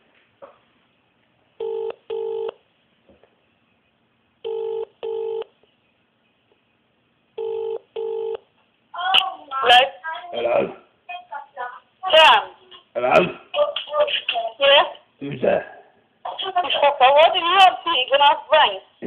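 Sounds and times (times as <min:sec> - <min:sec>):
telephone double ringing tone: 0:01.6 - 0:02.6, 0:04.4 - 0:05.5, 0:07.4 - 0:08.4.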